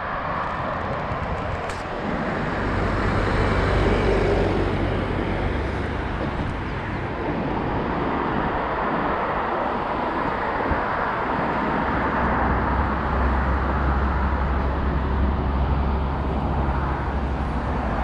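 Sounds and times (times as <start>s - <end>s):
road traffic rushing: 0.0s - 18.0s.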